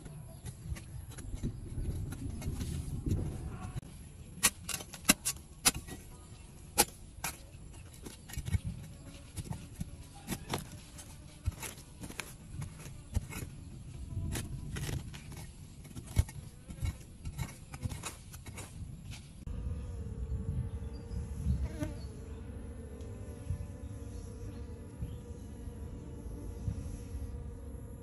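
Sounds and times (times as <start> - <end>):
low rumble: 19.4 - 28.0.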